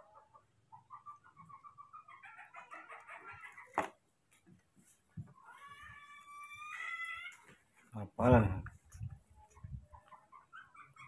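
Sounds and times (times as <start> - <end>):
rapid pitched animal calls: 5.4 - 7.5.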